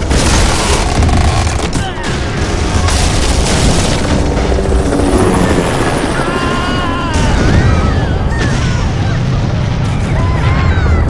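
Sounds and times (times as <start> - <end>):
crashing debris: 0.0 - 4.4
women screaming: 6.2 - 8.9, 10.1 - 11.0
explosions with low rumble: 7.1 - 11.0.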